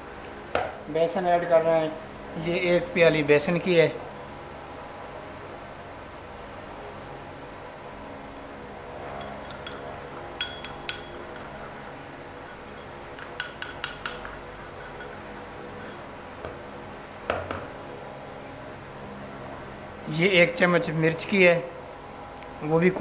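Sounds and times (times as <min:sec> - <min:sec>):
steady low hum: 0:00.0 - 0:23.0
metal spoon clinking on cup: 0:09.2 - 0:11.7, 0:12.5 - 0:15.2.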